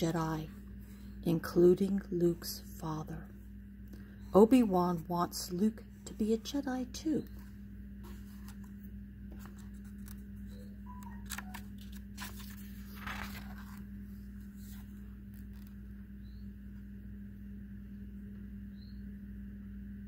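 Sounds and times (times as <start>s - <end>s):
steady low hum: 0.0s - 20.0s
book pages turning: 7.2s - 15.9s
paper rustle: 8.0s - 15.8s.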